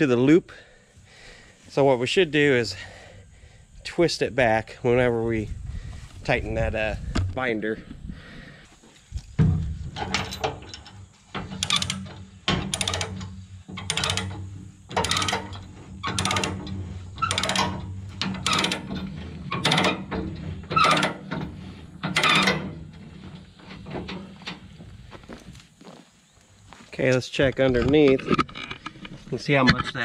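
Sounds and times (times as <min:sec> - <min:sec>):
ratchet pawl clicking: 0:11.5 - 0:12.1, 0:12.7 - 0:19.0.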